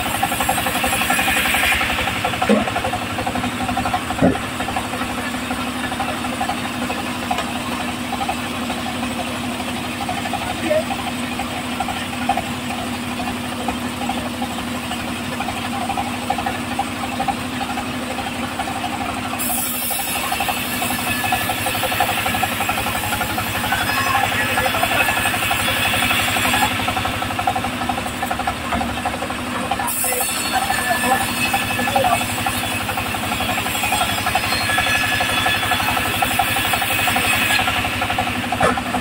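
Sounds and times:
saw blade hissing through wood: 0.0s - 2.7s, 19.3s - 26.9s, 29.9s - 38.4s
engine knocking steadily: 0.0s - 39.0s.

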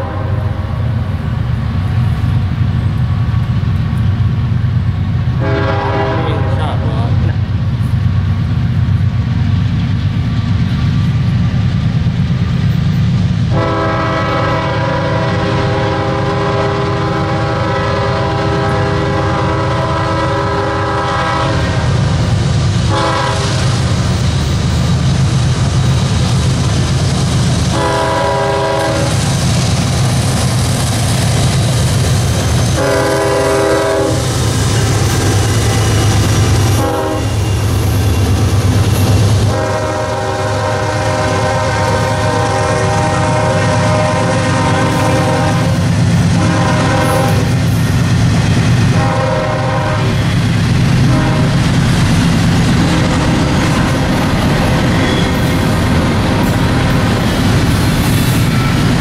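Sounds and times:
locomotive air horn blasts: 0.0s - 0.6s, 5.4s - 6.8s, 13.5s - 22.0s, 22.9s - 23.7s, 27.7s - 29.2s, 32.8s - 34.4s, 36.7s - 37.6s, 39.5s - 45.8s, 46.4s - 47.5s, 48.9s - 50.3s, 51.1s - 51.6s
locomotive engine rumble: 0.0s - 59.0s.

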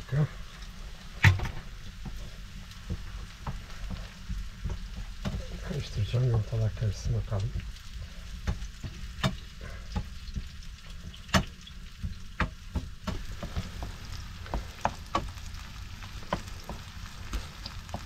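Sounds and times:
food sizzling in a frying pan: 0.0s - 18.0s
utensil tapping and scraping pan: 2.0s - 5.8s, 8.4s - 15.4s.

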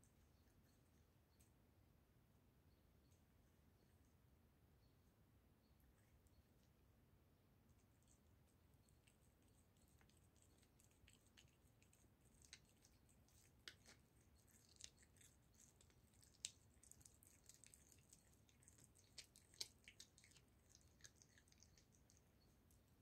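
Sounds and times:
cat chewing bone: 7.8s - 23.0s.

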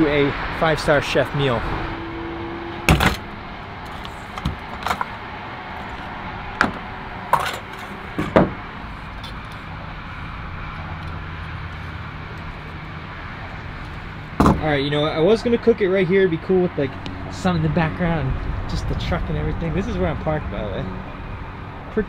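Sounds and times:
gear clicks and knocks: 3.9s - 5.2s.

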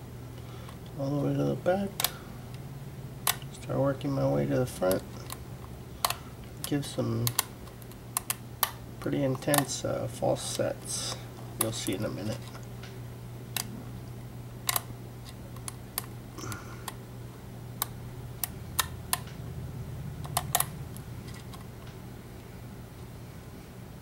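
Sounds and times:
steady low hum: 0.0s - 24.0s
lock pick metallic clicks: 6.0s - 8.8s, 14.7s - 16.2s.

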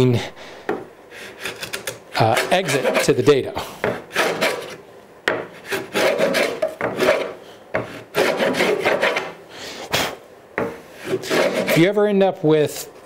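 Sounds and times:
router plane scraping wood: 1.2s - 4.8s, 5.6s - 9.4s, 11.0s - 12.0s.

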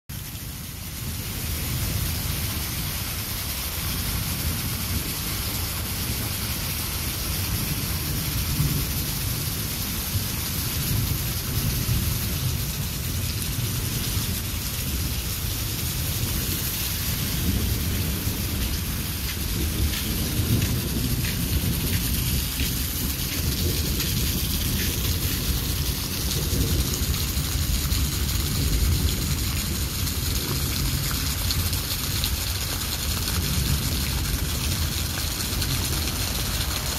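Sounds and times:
rain on wet ground: 0.1s - 36.9s
runoff water: 0.1s - 36.9s
low rumble: 14.6s - 26.7s.

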